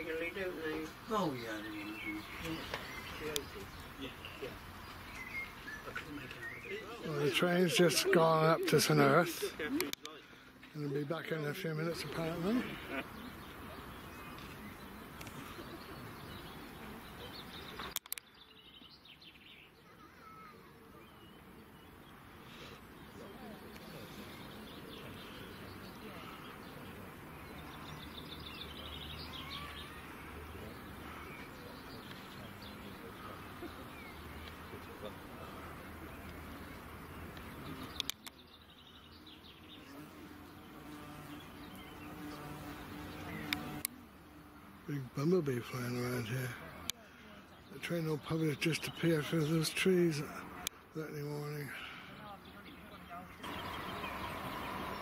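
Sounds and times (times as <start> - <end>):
outdoor background hiss: 0.0 - 55.0
small birds chirping: 0.0 - 55.0
sharp click: 17.8 - 18.3
bumblebee buzzing: 39.6 - 44.8.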